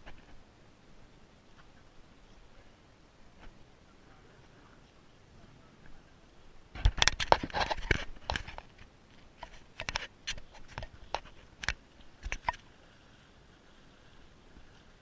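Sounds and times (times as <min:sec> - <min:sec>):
sharp clicks and crunchy knocks: 0:00.0 - 0:00.4, 0:06.7 - 0:12.7.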